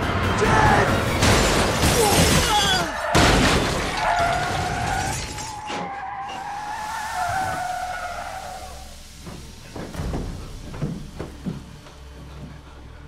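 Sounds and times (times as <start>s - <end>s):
car crash with crunching metal: 0.8s - 6.6s
glass shattering: 1.1s - 5.9s
tyres squealing: 1.8s - 12.7s.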